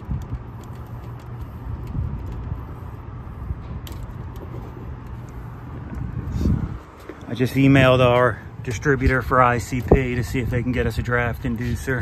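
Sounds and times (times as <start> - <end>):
small clicks of wires handled: 0.0 - 2.5
low hum: 0.0 - 10.5
wind rumble on microphone: 0.0 - 12.0.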